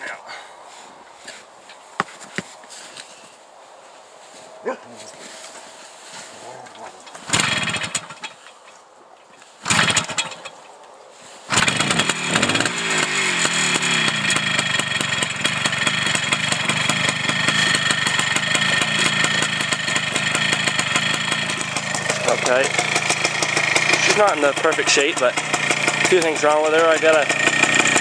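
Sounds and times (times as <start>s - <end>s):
motorcycle kick-starting and running: 5.4s - 10.7s, 11.5s - 28.0s.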